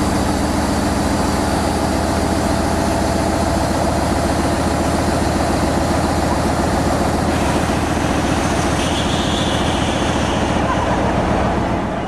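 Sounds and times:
steam hissing: 7.2s - 10.8s.

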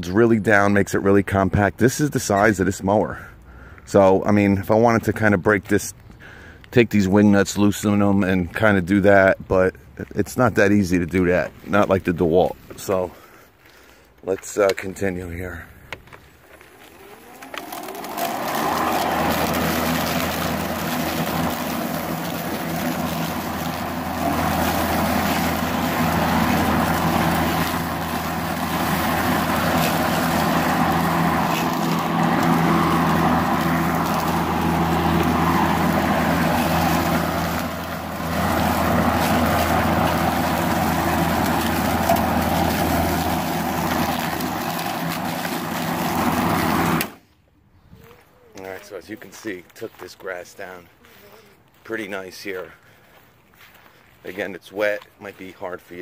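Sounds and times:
electric lawn mower running: 15.9s - 47.3s
blade cutting wet grass: 16.1s - 47.3s.

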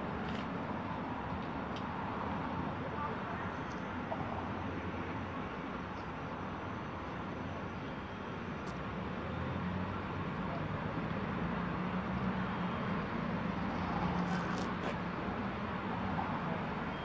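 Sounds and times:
outdoor background noise: 0.0s - 17.0s.

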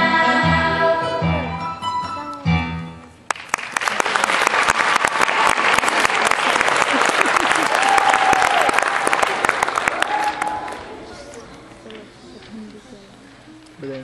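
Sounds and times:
choir singing: 0.0s - 1.5s
audience applauding: 3.3s - 11.4s.

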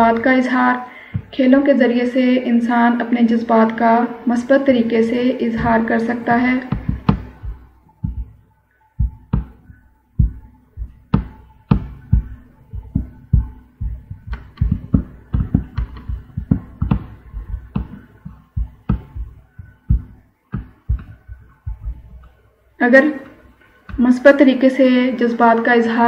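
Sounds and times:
faint steady hum: 0.0s - 26.0s
sharp knocks: 5.6s - 8.4s, 9.0s - 22.3s.

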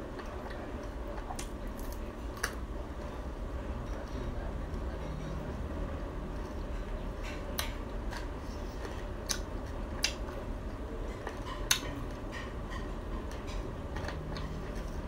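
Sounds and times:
crunchy chewing: 0.0s - 3.1s, 6.4s - 15.0s.

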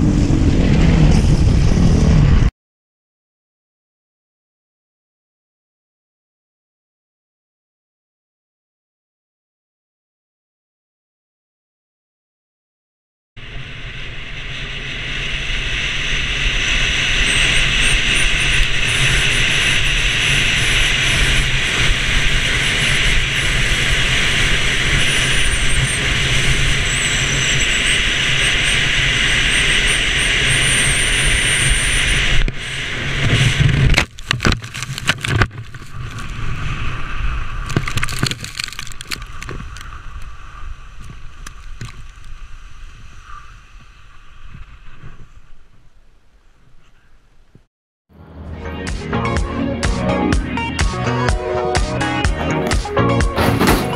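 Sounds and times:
wind rushing over camera: 0.0s - 2.5s, 13.4s - 47.7s
skier crashing and tumbling: 33.2s - 45.4s, 52.5s - 53.9s
scraping and rustling in snow: 33.2s - 45.9s, 53.3s - 53.9s
skis hissing on snow: 35.7s - 45.4s.

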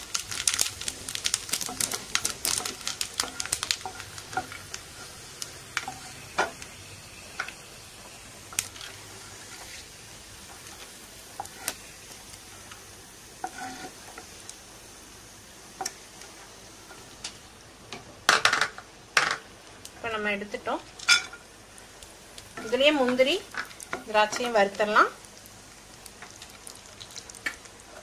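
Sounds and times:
ghee sizzling in a frying pan: 0.0s - 28.0s
wooden spatula scraping a pan: 5.8s - 6.2s, 8.6s - 11.8s, 13.4s - 14.3s.

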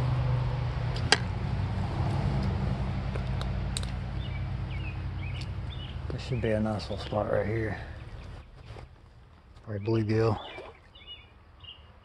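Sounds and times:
steady low rumble: 0.0s - 9.8s
footsteps through brush: 5.7s - 9.8s.

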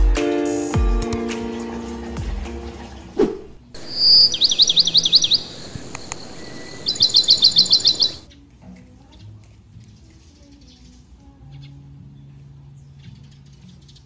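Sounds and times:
brief whoosh: 3.2s - 3.6s
songbird calling: 3.8s - 8.3s.

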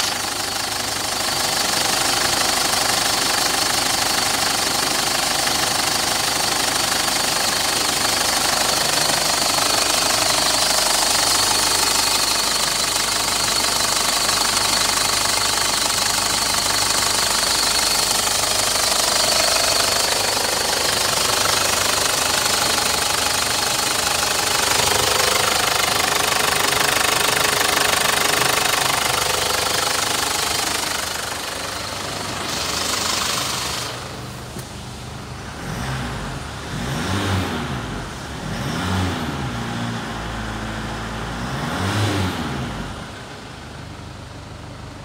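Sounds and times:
diesel engine idling: 0.0s - 39.5s.

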